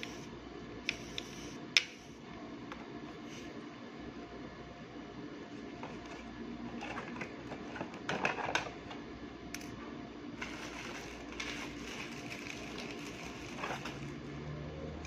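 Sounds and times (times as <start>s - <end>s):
steady low hum: 0.0s - 15.0s
plastic bag rustling: 10.4s - 14.2s.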